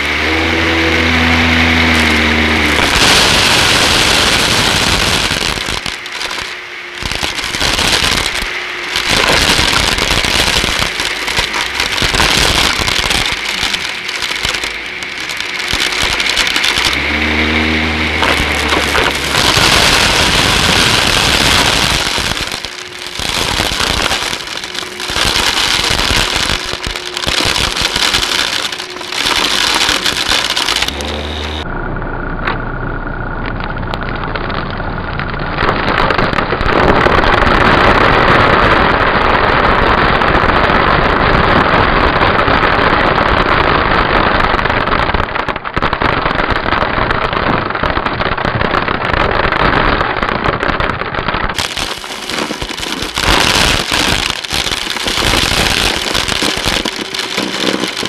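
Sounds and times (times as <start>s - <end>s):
vacuum cleaner running: 0.0s - 4.7s
foil and beads crackling: 0.4s - 31.6s, 34.0s - 58.0s.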